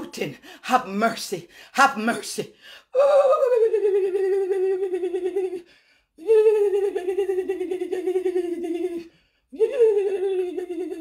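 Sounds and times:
woman's trembling wordless cries: 3.0s - 5.6s.

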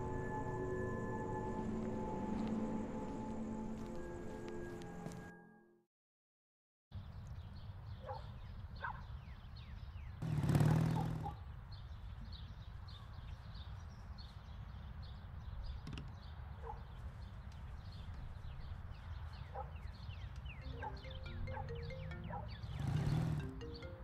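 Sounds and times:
small birds chirping: 7.0s - 24.0s.

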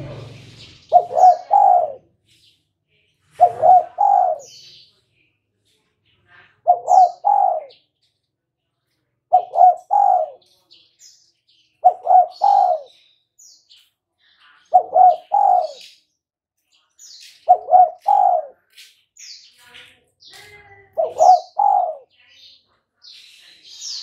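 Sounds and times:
dove cooing: 0.0s - 2.1s, 3.4s - 4.6s, 6.6s - 7.8s, 9.3s - 10.4s, 11.8s - 13.0s, 14.7s - 15.8s, 17.5s - 18.6s, 21.0s - 22.1s.

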